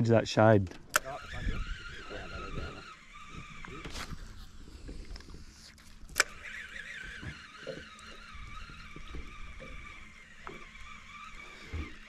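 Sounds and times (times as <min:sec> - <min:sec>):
light wind: 0:00.0 - 0:12.0
fishing reel whirring: 0:00.8 - 0:12.0
fishing reel click: 0:00.9 - 0:04.3, 0:05.0 - 0:12.0
water lapping: 0:01.1 - 0:12.0.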